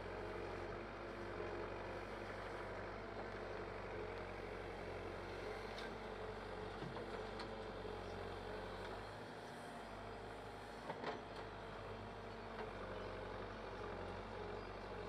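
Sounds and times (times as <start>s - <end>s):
diesel engine running: 0.0s - 15.0s.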